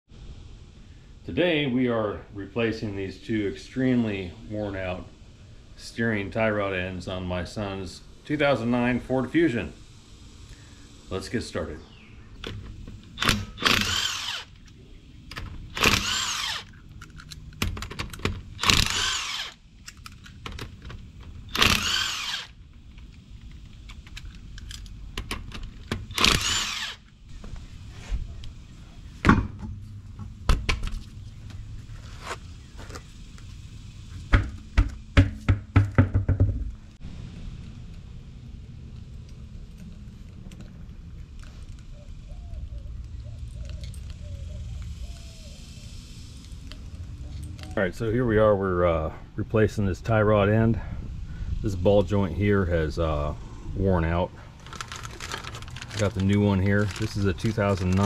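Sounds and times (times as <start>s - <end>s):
impact wrench bursts: 12.4s - 22.6s, 25.2s - 27.2s
knocks: 34.3s - 36.7s.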